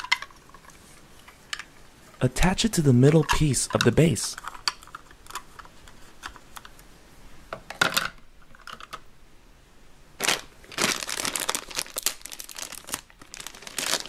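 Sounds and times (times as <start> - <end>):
plastic bag crinkling: 10.2 - 14.0.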